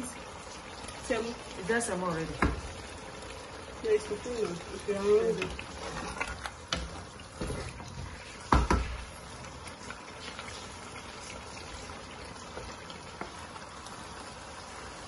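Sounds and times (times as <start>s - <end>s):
wet stew stirring: 0.2s - 15.0s
spatula knocking against pot: 8.5s - 9.0s.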